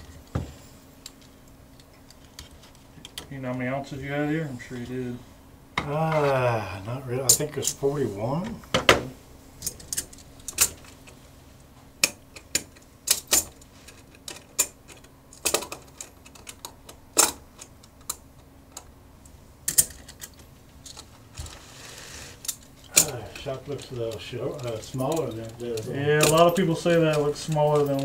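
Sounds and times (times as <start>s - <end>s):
coins clinking: 22.5s - 28.0s.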